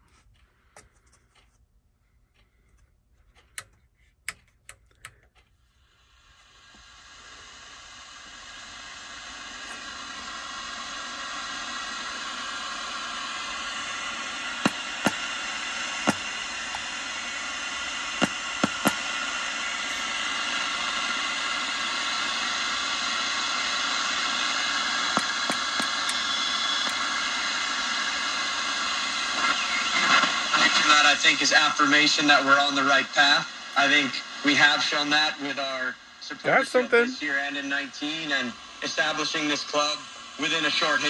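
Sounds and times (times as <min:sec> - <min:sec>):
radio static hiss: 0:05.7 - 0:41.0
sharp clicks: 0:16.1 - 0:16.9, 0:18.2 - 0:19.1, 0:25.2 - 0:27.0.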